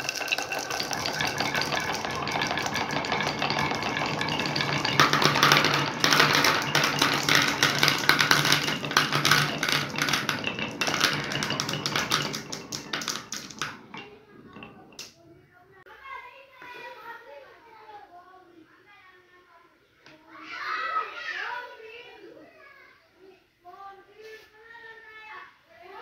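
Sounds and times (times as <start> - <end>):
marbles dropping into plastic tub: 0.0 - 15.2
marbles rattling down wooden chutes: 0.0 - 15.2.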